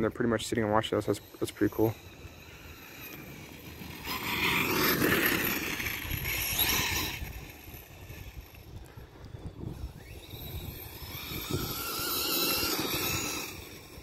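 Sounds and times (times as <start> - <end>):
electric motor whining: 0.5 - 14.0.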